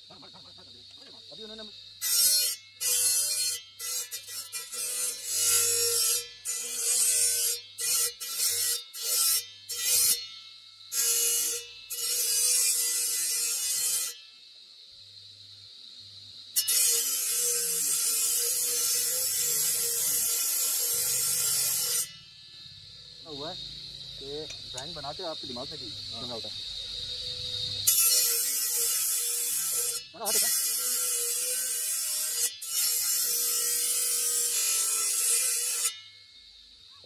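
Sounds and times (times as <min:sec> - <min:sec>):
stone-cutting disc grinding: 0:02.0 - 0:14.2, 0:16.6 - 0:22.3, 0:27.8 - 0:36.2.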